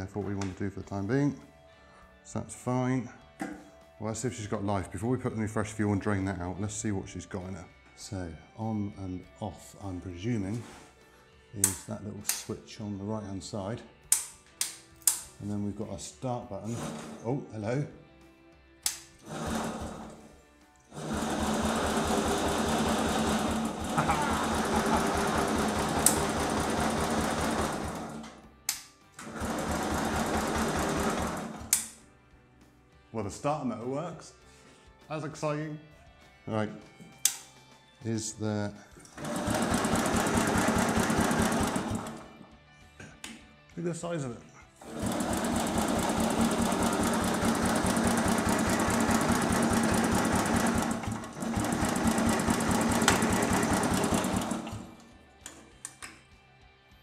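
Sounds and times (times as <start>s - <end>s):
sharp click: 18.8s - 19.1s, 28.7s - 29.0s
starter motor cranking engine: 19.2s - 20.3s, 20.9s - 28.4s, 29.2s - 31.9s, 39.1s - 42.4s, 44.8s - 55.0s.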